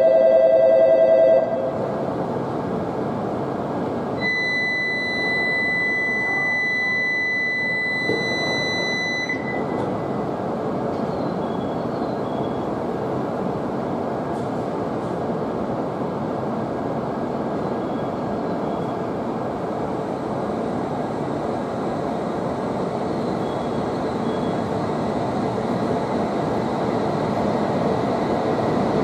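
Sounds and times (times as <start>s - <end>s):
station and train noise: 0.0s - 29.0s
high-pitched warning tone: 4.2s - 9.9s.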